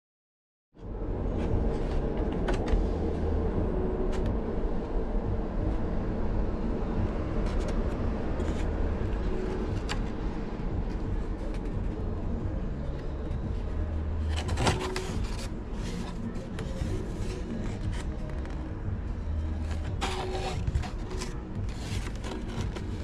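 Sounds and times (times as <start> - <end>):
low machine rumble: 0.8 - 23.0.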